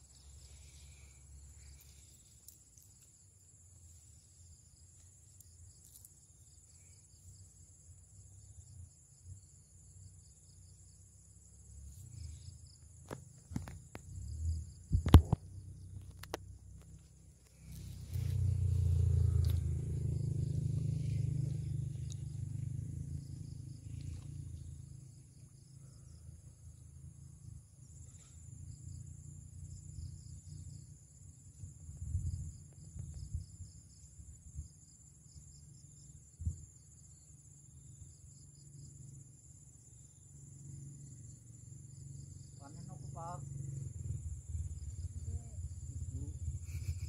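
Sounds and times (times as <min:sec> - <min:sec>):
insects chirping: 0:00.0 - 0:47.0
low rumble: 0:17.4 - 0:25.4.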